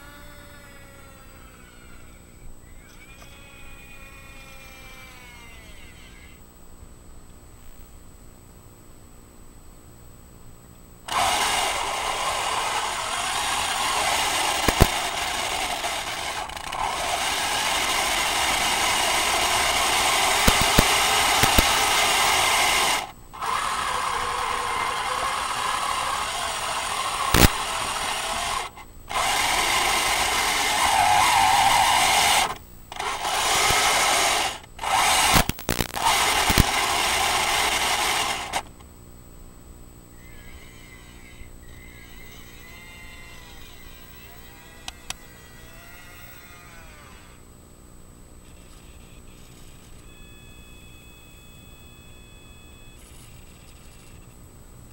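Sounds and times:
toy tank mechanical whir: 0.0 - 6.4, 11.1 - 38.7, 40.2 - 47.4
scattered clicks: 11.1 - 23.5, 27.0 - 38.9.

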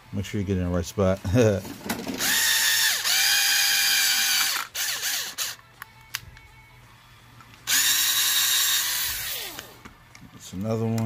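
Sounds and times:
power drill whining: 2.1 - 5.6, 7.7 - 9.9.

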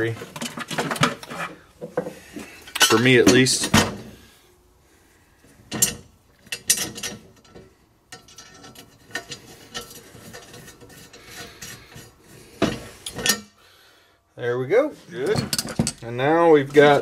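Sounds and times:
metal clanks and clicks: 5.7 - 11.8, 12.7 - 13.5, 15.3 - 16.0.

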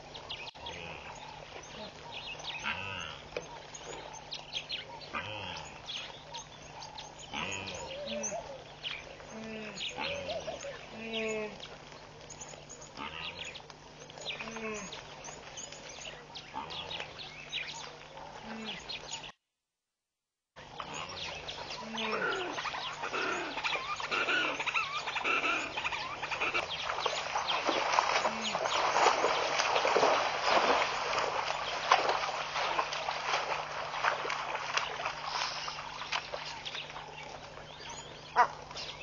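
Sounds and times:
birds calling and chirping: 0.0 - 19.4, 20.6 - 39.0
water splashing: 20.7 - 38.9.

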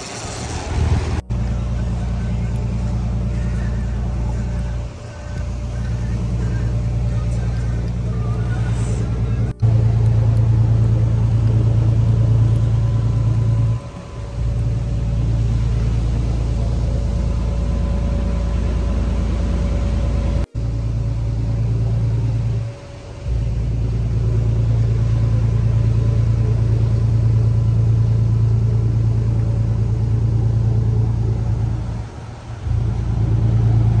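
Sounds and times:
water rushing: 0.0 - 20.3
boat engine droning: 0.0 - 34.0
wind: 0.0 - 34.0.

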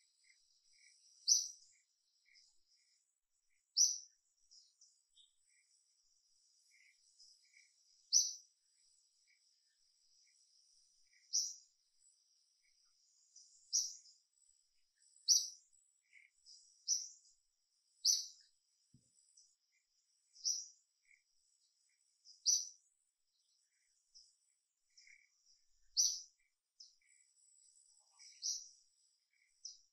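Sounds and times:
birds chirping: 0.0 - 29.9.

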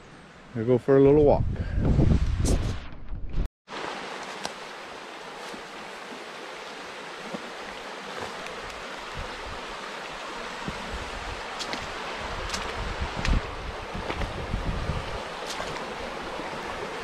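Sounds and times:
water rushing over stones: 3.7 - 17.0.

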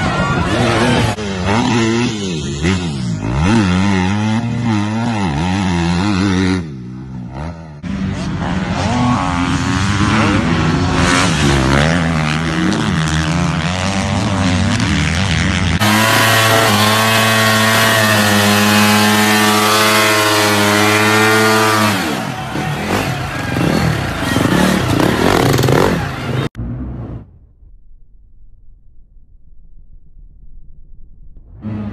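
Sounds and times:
dirt bike engine revving: 0.0 - 27.0.

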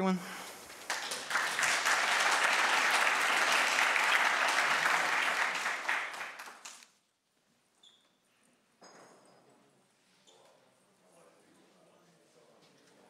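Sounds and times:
audience applauding: 0.6 - 6.9.

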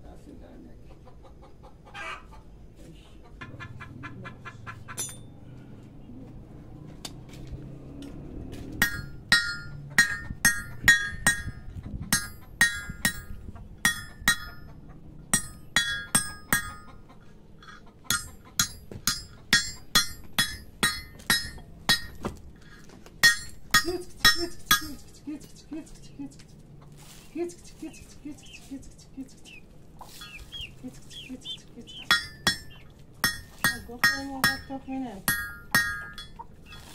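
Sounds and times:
hammer striking metal rod: 5.0 - 5.3, 8.8 - 14.7, 15.3 - 17.0, 17.6 - 22.3, 23.2 - 25.0, 32.0 - 36.9.

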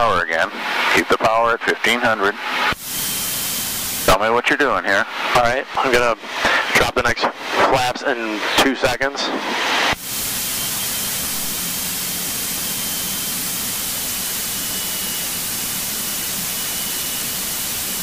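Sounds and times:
light plane engine: 0.2 - 6.8, 8.2 - 18.0
rushing airflow hiss: 9.3 - 18.0.

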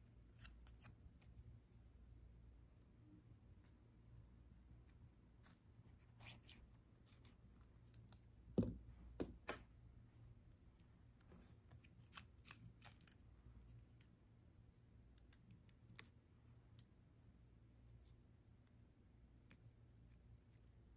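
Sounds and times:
object set down thump: 8.6 - 9.6.

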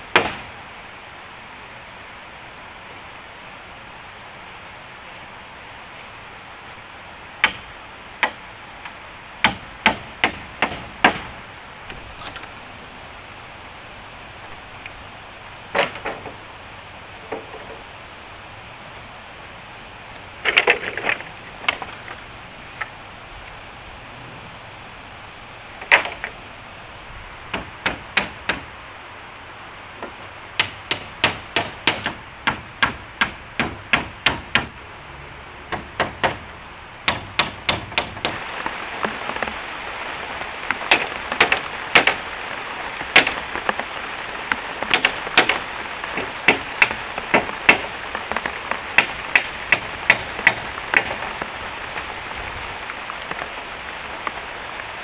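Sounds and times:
rain hiss: 0.0 - 55.0
hammer striking wood: 0.1 - 0.5, 7.4 - 8.4, 9.4 - 11.3, 27.5 - 28.7, 30.0 - 34.8, 35.7 - 36.4, 37.0 - 38.4, 40.9 - 42.2, 43.1 - 43.4, 44.9 - 45.6, 46.2 - 47.9, 49.0 - 51.2.

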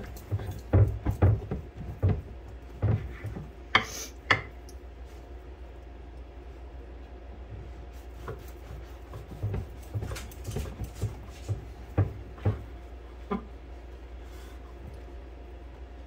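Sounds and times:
knife cutting bread on board: 8.0 - 11.1.

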